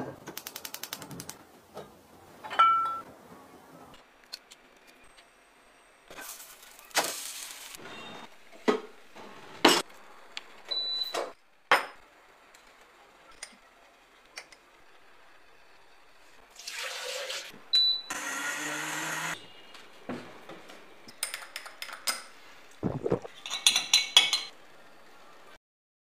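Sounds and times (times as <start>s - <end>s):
liquid pouring into glass: 16.6s - 17.5s
blender beeping: 17.8s - 19.5s
blender motor running: 18.1s - 19.4s.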